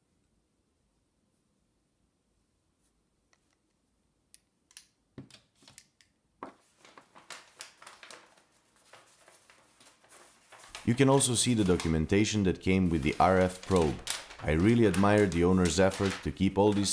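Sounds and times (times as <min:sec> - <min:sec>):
paper rustling and crinkling: 0:06.4 - 0:16.9.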